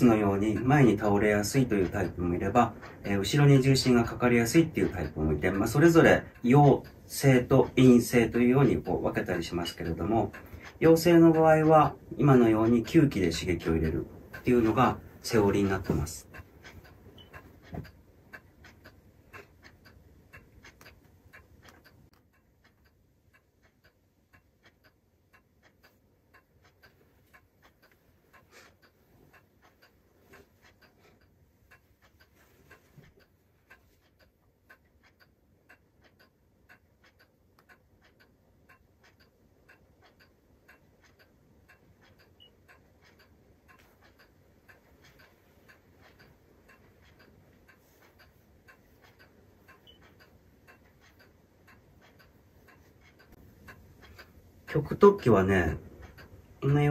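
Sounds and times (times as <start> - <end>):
faint regular ticking: 0.0 - 56.9.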